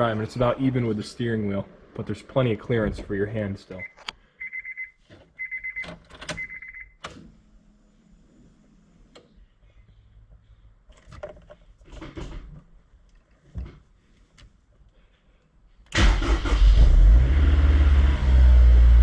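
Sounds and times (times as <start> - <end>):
car warning chime beeping: 3.8 - 7.0.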